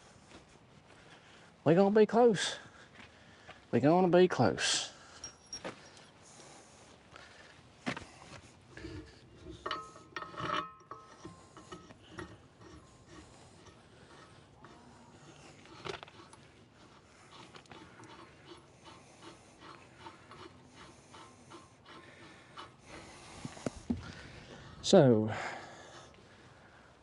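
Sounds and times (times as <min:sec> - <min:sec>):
metal clanking and scraping: 0:08.7 - 0:23.1.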